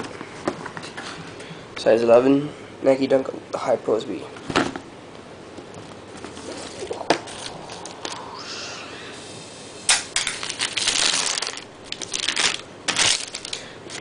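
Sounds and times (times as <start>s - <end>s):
tissue paper crinkling: 10.4s - 14.0s.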